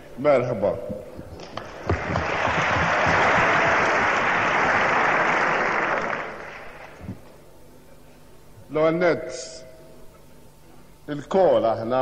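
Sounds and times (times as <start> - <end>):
audience applauding: 1.6 - 7.0.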